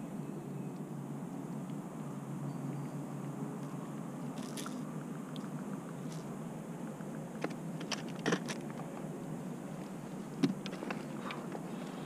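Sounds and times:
steady low hum: 0:00.0 - 0:12.0
fishing gear clicks and knocks: 0:04.4 - 0:04.8, 0:07.4 - 0:09.0.

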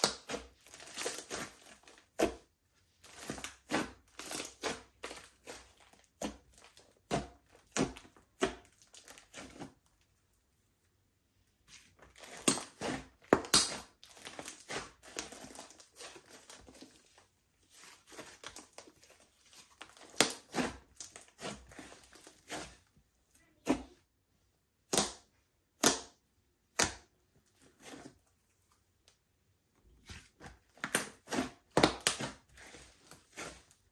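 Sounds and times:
slime squishing and popping: 0:12.1 - 0:16.8.

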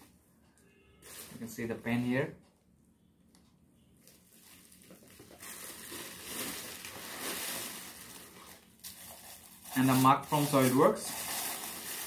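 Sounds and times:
plastic and bubble wrap crinkling: 0:01.0 - 0:01.7, 0:04.0 - 0:12.0.

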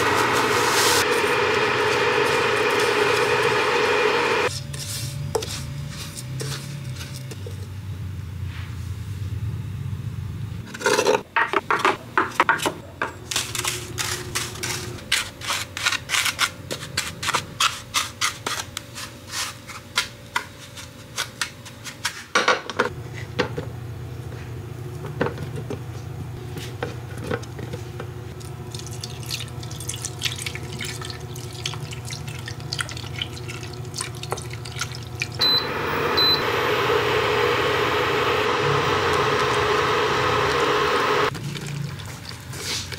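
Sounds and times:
cooling fan running: 0:00.0 - 0:08.3, 0:22.8 - 0:42.9
cooktop beeps: 0:35.4 - 0:41.3.

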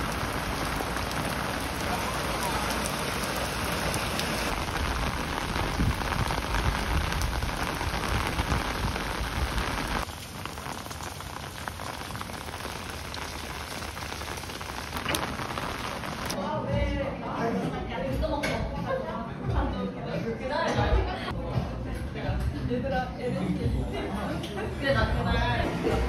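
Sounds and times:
rain on wet pavement: 0:00.0 - 0:16.4.

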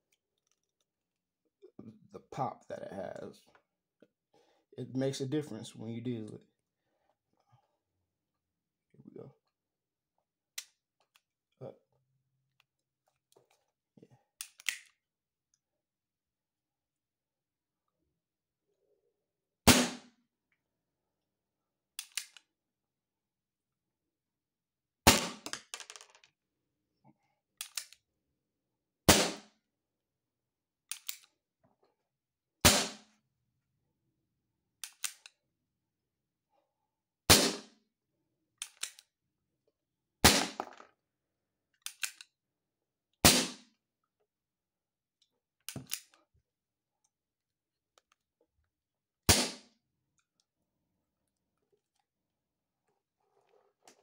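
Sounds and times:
revolver hammer cocking clicks: 0:34.8 - 0:35.4.

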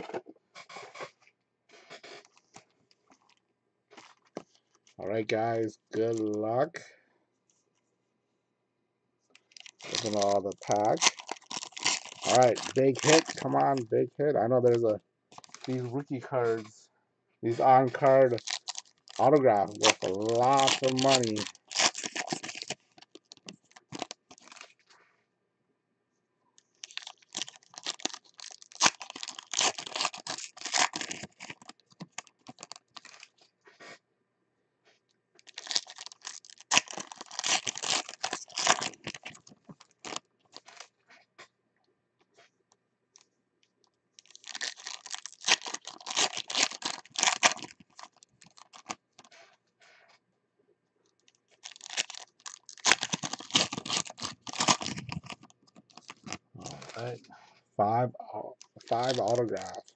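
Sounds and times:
card pack wrappers tearing: 0:09.5 - 0:13.9, 0:14.6 - 0:15.9, 0:17.5 - 0:24.8, 0:26.6 - 0:33.4, 0:35.4 - 0:40.9, 0:44.2 - 0:49.4, 0:51.2 - 0:57.1, 0:58.6 - 0:59.9.

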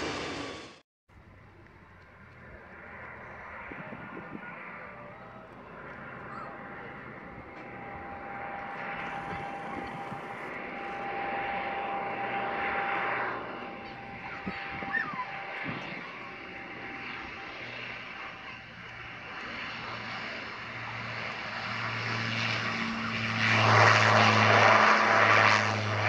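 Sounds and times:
rushing noise: 0:00.0 - 0:00.8
turboprop engines whining: 0:00.0 - 0:26.0.

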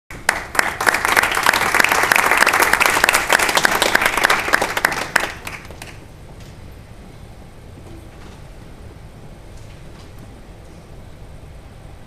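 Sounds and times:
audience applauding: 0:00.1 - 0:06.0.

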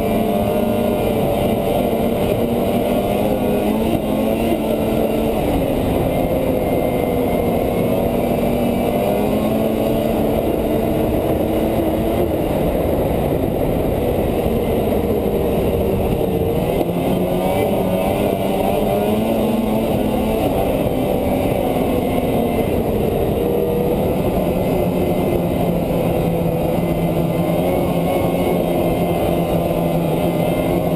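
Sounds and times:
low rumble of wind and track: 0:00.0 - 0:30.9
snowmobile engine running: 0:00.0 - 0:30.9.

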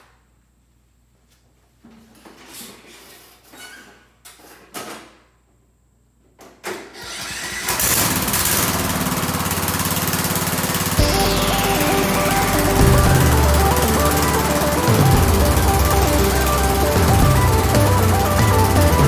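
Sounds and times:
lawn tractor engine starting and running: 0:07.0 - 0:19.0.

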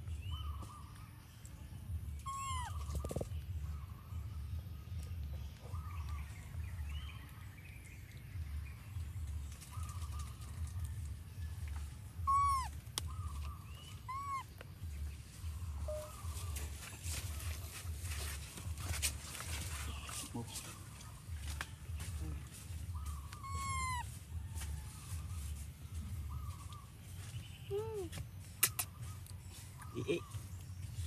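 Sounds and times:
steady low rumble: 0:01.4 - 0:27.3
animal calls rising and falling: 0:12.3 - 0:12.8, 0:23.3 - 0:24.1.

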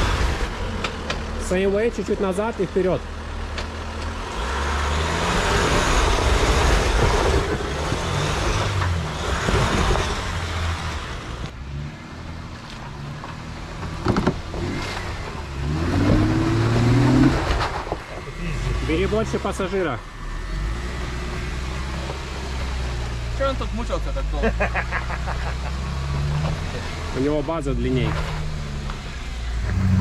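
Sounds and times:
engine revving under load: 0:00.0 - 0:12.4, 0:13.9 - 0:30.0.

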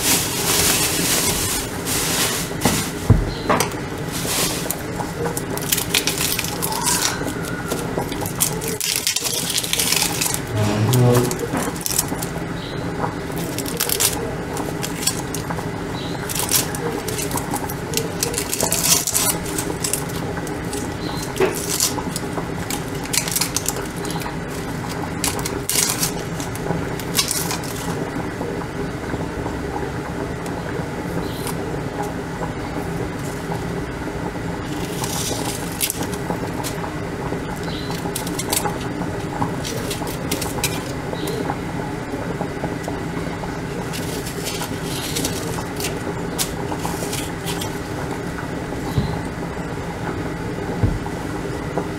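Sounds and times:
plastic bag rustling: 0:00.0 - 0:12.6, 0:13.2 - 0:28.0, 0:34.6 - 0:41.3, 0:42.7 - 0:49.4
onion skin crackling: 0:00.0 - 0:28.2, 0:34.6 - 0:49.5
steady machine hum: 0:00.0 - 0:51.9.

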